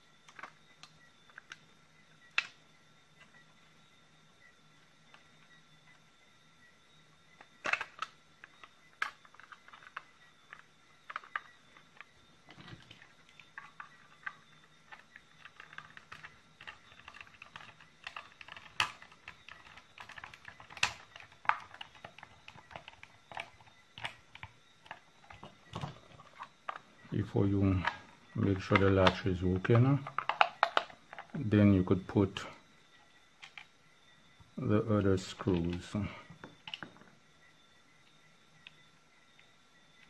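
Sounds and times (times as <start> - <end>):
plastic clicks and taps: 30.0 - 31.4.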